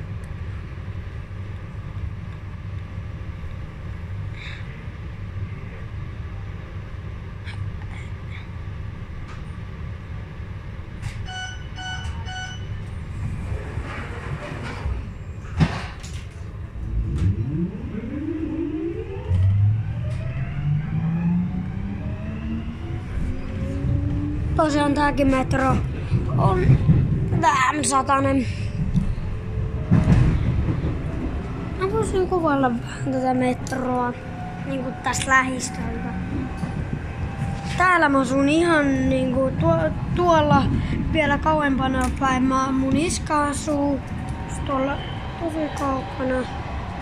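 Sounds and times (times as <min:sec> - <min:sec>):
train low rumble: 0:00.0 - 0:47.0
traction motors whining: 0:11.0 - 0:28.0, 0:42.8 - 0:47.0
pulsed electronic beeps: 0:16.8 - 0:23.0.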